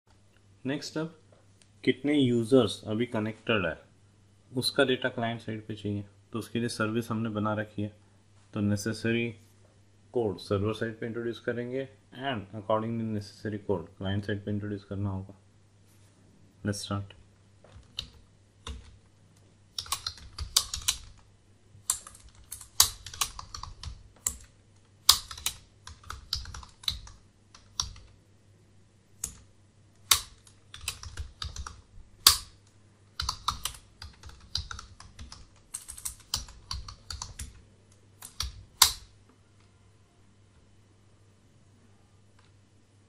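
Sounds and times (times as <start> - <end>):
computer keyboard typing: 17.7 - 19.0, 19.7 - 28.2, 30.0 - 37.6, 38.2 - 39.1.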